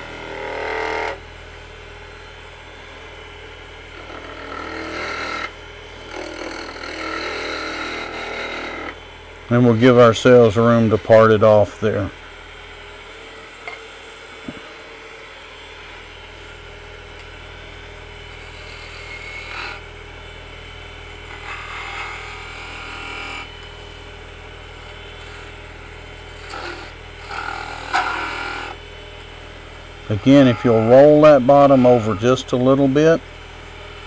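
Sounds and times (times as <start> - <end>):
gouge cutting spinning wood: 0.0 - 1.2, 3.8 - 12.1, 17.7 - 34.0
wood lathe humming: 0.0 - 34.0.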